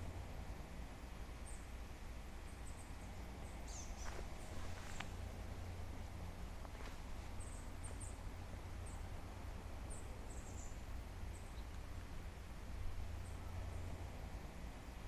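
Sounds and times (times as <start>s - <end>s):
low background rumble: 0.0s - 15.0s
small bird chirping: 2.4s - 5.2s, 6.8s - 9.1s, 9.8s - 12.5s.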